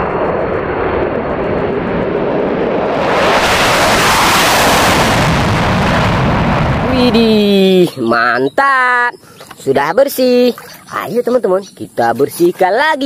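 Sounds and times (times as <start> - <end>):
fighter jet roar taking off: 0.0 - 7.8.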